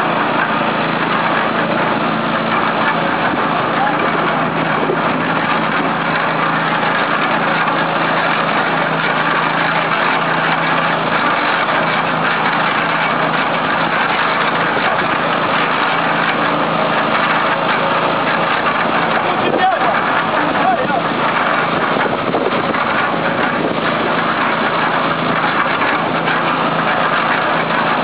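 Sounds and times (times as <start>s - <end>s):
concrete mixer engine humming: 0.0s - 28.0s.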